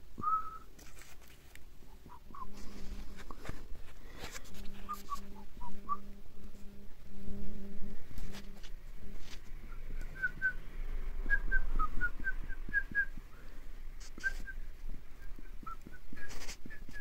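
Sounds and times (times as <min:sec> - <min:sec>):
low hum: 0:04.7 - 0:17.0.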